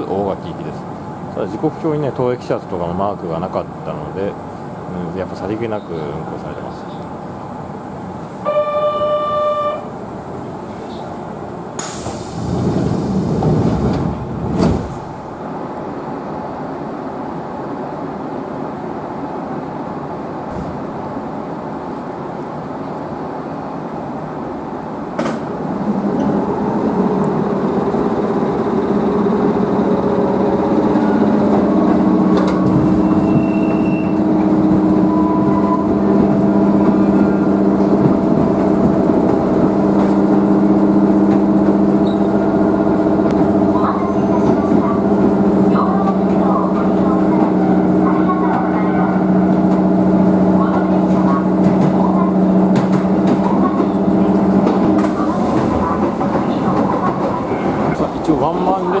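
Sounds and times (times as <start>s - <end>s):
train running noise: 0.0s - 59.0s
buzzer tone: 8.5s - 9.9s
train doors hissing shut: 10.6s - 15.2s, 20.5s - 20.9s, 31.8s - 34.3s.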